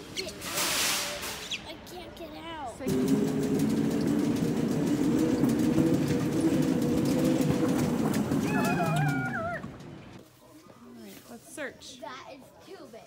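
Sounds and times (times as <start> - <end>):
plastic cart wheels rumbling: 2.9 - 10.2.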